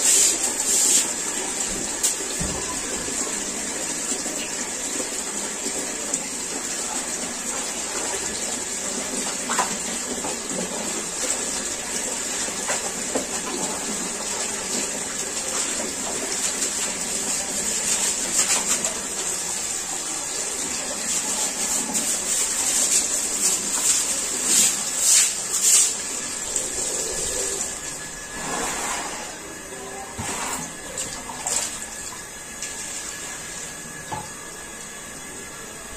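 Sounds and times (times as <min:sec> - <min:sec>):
floor scrubbed by hand: 0:00.0 - 0:01.2, 0:21.2 - 0:26.0, 0:28.4 - 0:29.5, 0:30.1 - 0:30.8
tap water running into bucket: 0:00.0 - 0:28.5, 0:30.2 - 0:35.6.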